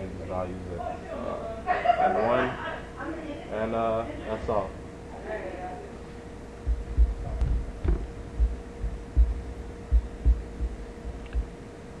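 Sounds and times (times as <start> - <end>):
faint hum: 0.0 - 12.0
dull handling thumps: 6.7 - 11.6.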